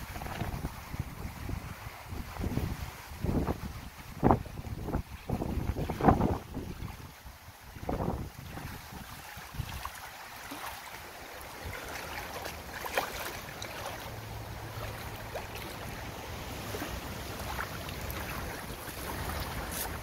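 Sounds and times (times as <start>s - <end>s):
water sloshing and lapping: 0.0s - 20.0s
fish splash: 8.5s - 20.0s.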